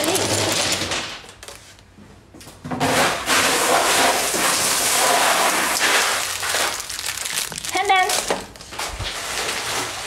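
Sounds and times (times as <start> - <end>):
small stones tumbling and rattling: 4.6 - 10.0.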